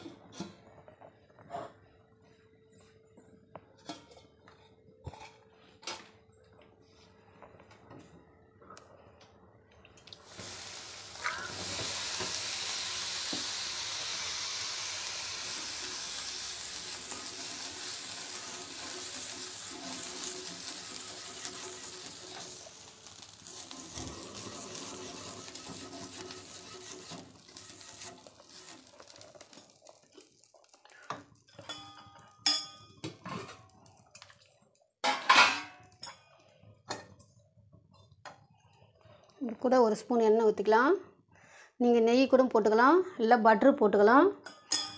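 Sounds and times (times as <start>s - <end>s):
batter sizzling on a griddle: 10.2s - 32.7s
kitchen utensils clinking: 35.0s - 36.3s, 44.4s - 44.9s.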